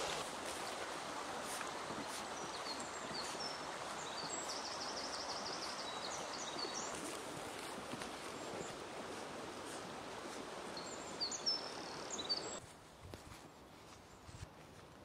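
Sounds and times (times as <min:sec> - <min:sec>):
outdoor background hiss: 0:00.0 - 0:15.0
small birds chirping: 0:01.6 - 0:07.2, 0:10.7 - 0:12.6.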